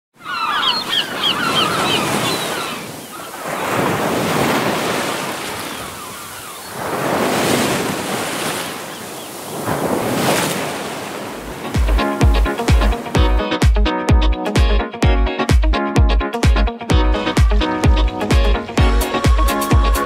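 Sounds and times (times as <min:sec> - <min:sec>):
high chirping calls: 0:00.2 - 0:03.7
ocean surf on rocky shore: 0:00.3 - 0:13.2.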